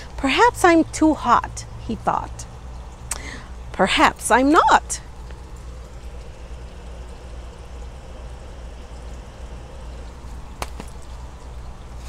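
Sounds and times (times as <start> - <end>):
low hum: 0.0 - 12.0
faint clicks: 3.1 - 3.3.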